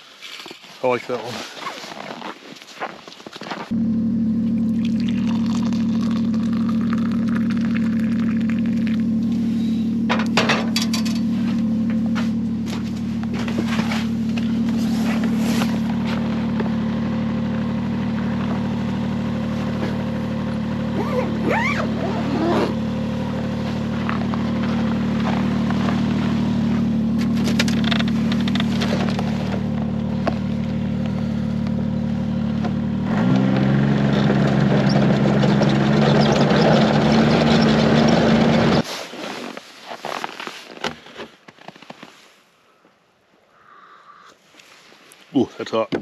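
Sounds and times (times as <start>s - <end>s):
snowmobile engine running: 3.7s - 38.8s
faint clicks and rustles: 39.0s - 42.4s.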